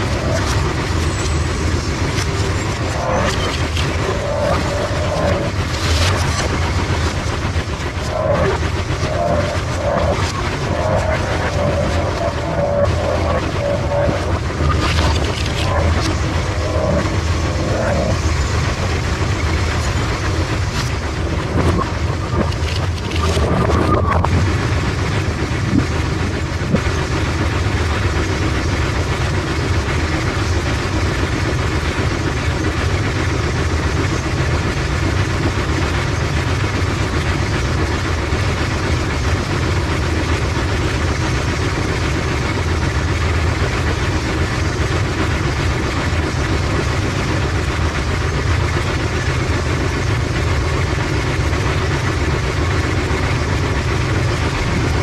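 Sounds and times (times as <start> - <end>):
machinery low mechanical drone: 0.0 - 55.0.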